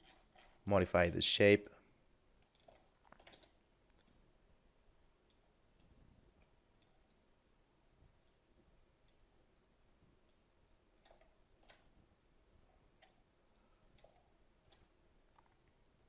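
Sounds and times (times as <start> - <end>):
computer mouse clicks: 2.4 - 4.2, 11.0 - 12.0, 13.0 - 13.2, 13.9 - 15.6.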